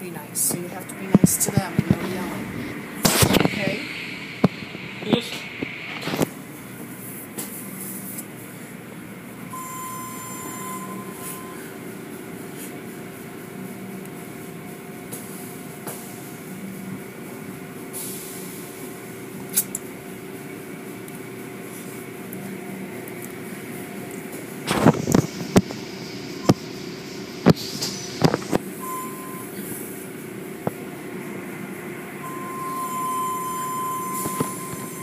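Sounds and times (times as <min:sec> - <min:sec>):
car wash machinery humming: 0:00.0 - 0:35.0
brief high tone: 0:09.5 - 0:11.7, 0:32.2 - 0:35.0.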